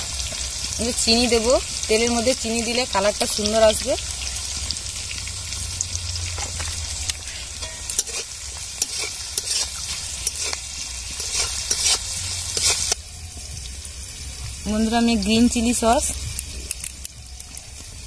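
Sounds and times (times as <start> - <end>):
vegetables sizzling in oil: 0.0 - 18.0
metal spatula scraping a pan: 6.3 - 13.0.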